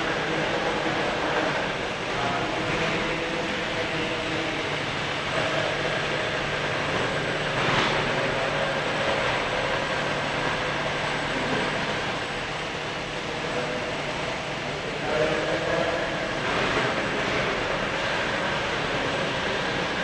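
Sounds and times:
machine running with low hum: 0:00.0 - 0:20.0.

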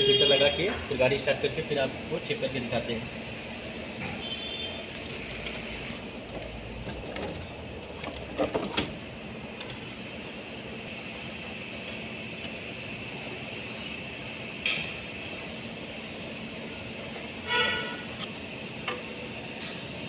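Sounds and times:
steady background hum: 0:00.0 - 0:20.0.

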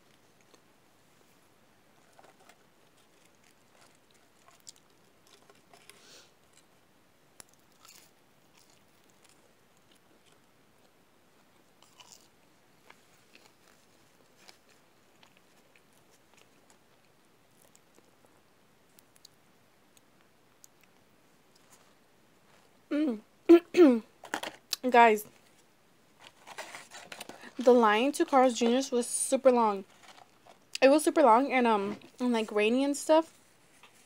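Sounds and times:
clicks and crackles handling food: 0:00.0 - 0:00.7, 0:01.8 - 0:22.8, 0:24.2 - 0:27.7, 0:29.4 - 0:30.8
chewing and mouth sounds: 0:02.8 - 0:06.7, 0:07.4 - 0:11.0, 0:11.8 - 0:21.8.

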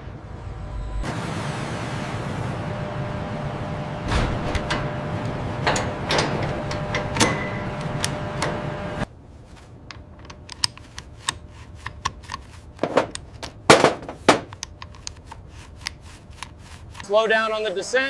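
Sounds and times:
mechanical din with knocks: 0:12.8 - 0:14.6.

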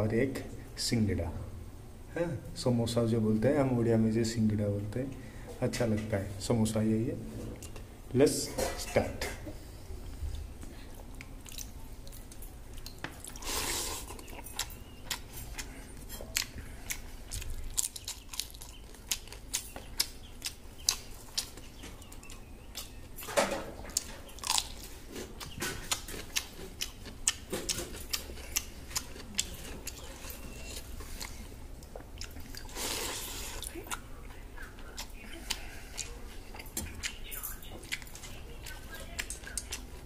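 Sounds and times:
chewing: 0:10.1 - 0:23.2, 0:23.8 - 0:40.0.

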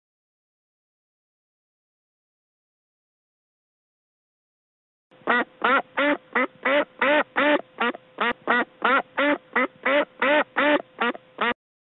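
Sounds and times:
duck quacking: 0:05.2 - 0:11.6.

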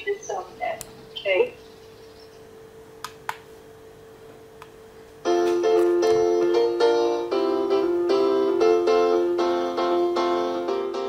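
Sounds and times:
piano-like keyboard chords: 0:05.1 - 0:11.0.

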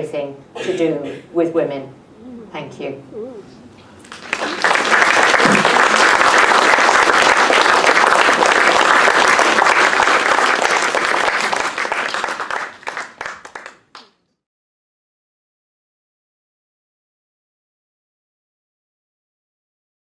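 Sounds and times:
audience applauding: 0:04.0 - 0:14.2.

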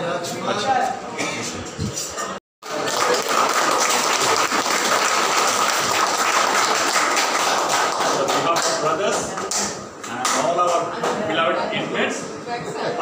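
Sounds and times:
group of people clapping: 0:02.6 - 0:11.2.

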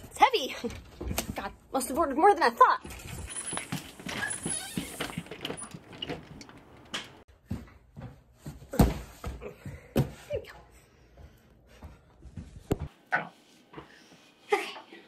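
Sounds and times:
knocks and clatter: 0:02.9 - 0:07.7
short rising squeak: 0:03.1 - 0:05.8
glass storm door shutting: 0:03.7 - 0:07.2.

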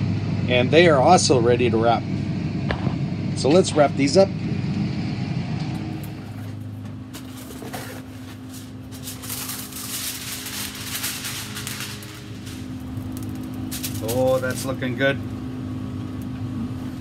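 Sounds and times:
steady low hum: 0:00.0 - 0:17.0
aluminium foil crinkling: 0:07.2 - 0:15.0.

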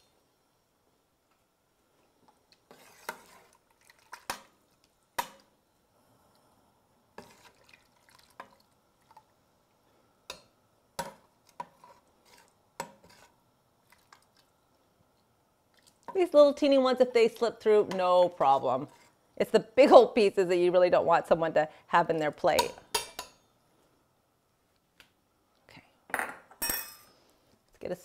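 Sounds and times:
spoon clinking in metal pot: 0:22.6 - 0:23.4.

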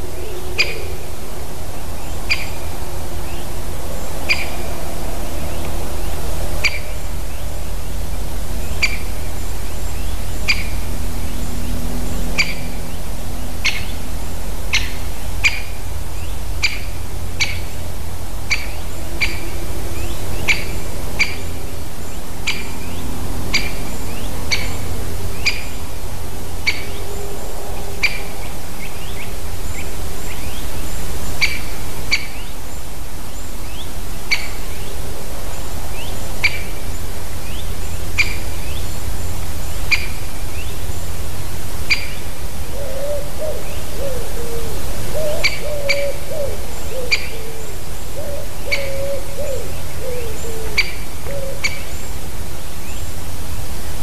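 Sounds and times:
lower wavering bird call: 0:00.0 - 0:07.1, 0:26.6 - 0:29.3, 0:41.9 - 0:52.0
steady low rumble: 0:00.0 - 0:45.2
woodpecker sharp calls: 0:02.2 - 0:02.6, 0:04.2 - 0:04.6, 0:06.6 - 0:07.0, 0:08.7 - 0:09.2, 0:10.4 - 0:10.8, 0:14.7 - 0:15.8, 0:16.6 - 0:17.8, 0:18.5 - 0:21.7, 0:23.5 - 0:25.8, 0:26.6 - 0:27.2, 0:41.8 - 0:52.0.

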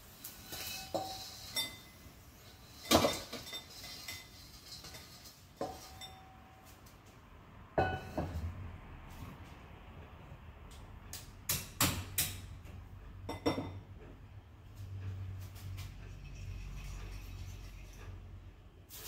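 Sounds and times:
metal spatula and wok clanking: 0:00.0 - 0:06.6, 0:07.8 - 0:08.5.

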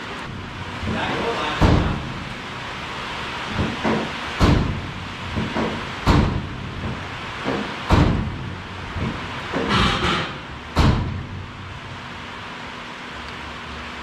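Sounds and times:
knocks on engine: 0:00.8 - 0:02.1, 0:03.5 - 0:08.4, 0:09.0 - 0:11.4.

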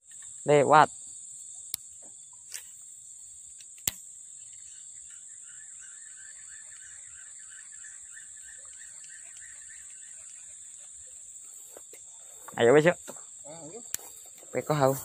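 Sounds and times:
crickets chirping: 0:00.0 - 0:15.0
sharp clicks: 0:03.5 - 0:04.7.

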